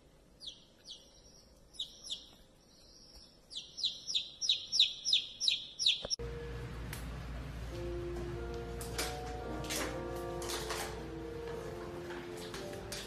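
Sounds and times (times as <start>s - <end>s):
baby chick peeping: 0.3s - 6.2s
music: 6.2s - 13.0s.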